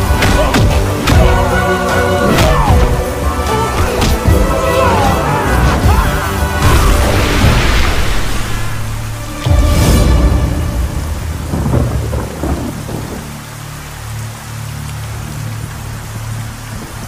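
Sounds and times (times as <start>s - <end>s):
heavy rain hissing: 0.0s - 17.0s
thunderclap rumbling: 3.8s - 13.5s.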